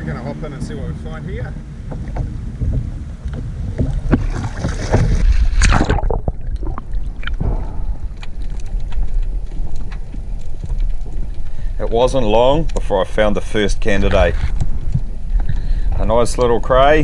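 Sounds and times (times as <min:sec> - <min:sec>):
muffled underwater rumble: 0:00.0 - 0:17.0
water splashing: 0:01.6 - 0:16.5
faint underwater clicks: 0:05.0 - 0:16.7.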